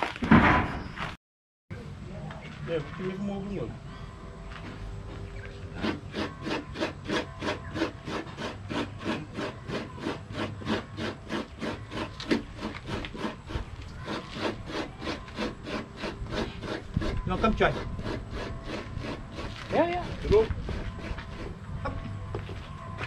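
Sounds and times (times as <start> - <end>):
coconut grater rasping: 5.7 - 21.7.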